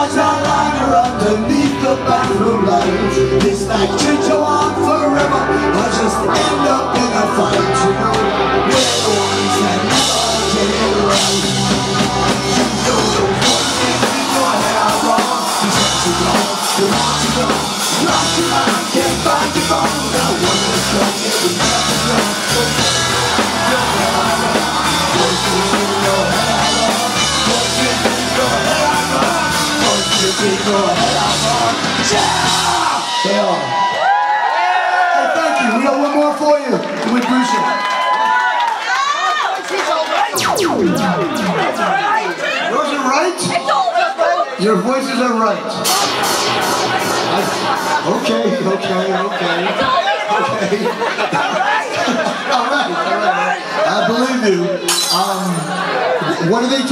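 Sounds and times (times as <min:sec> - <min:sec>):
person singing: 0:00.0 - 0:33.6
bass guitar: 0:00.0 - 0:33.8
drum kit: 0:00.0 - 0:33.8, 0:40.4 - 0:42.5, 0:45.8 - 0:48.9
electric guitars: 0:00.0 - 0:34.1.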